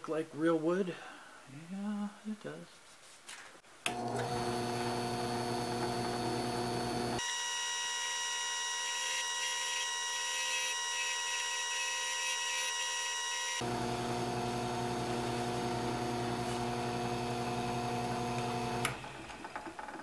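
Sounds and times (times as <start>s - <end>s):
drill press motor hum with whine: 3.9s - 19.8s.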